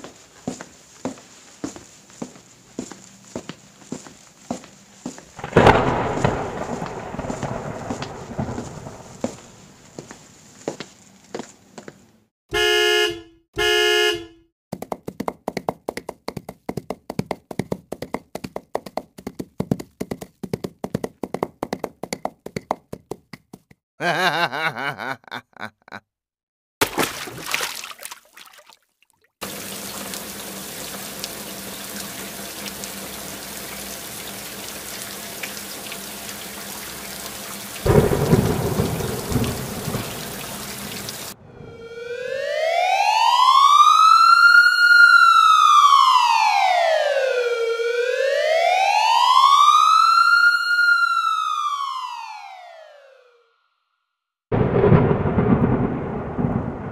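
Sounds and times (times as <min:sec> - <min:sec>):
quick footsteps: 0:00.0 - 0:12.1, 0:14.7 - 0:23.8
heavy rain: 0:05.4 - 0:10.1, 0:29.4 - 0:41.4, 0:54.6 - 0:56.9
plops: 0:26.8 - 0:29.3.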